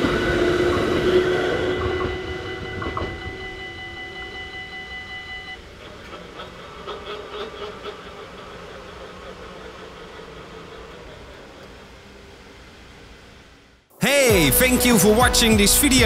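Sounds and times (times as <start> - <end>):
level-crossing warning bell: 0.0 - 5.6.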